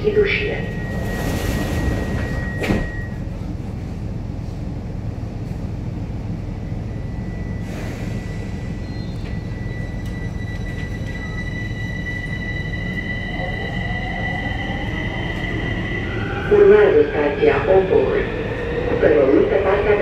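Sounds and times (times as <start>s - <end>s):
train low rumble: 0.0s - 20.0s
train doors thumping shut: 1.7s - 3.1s.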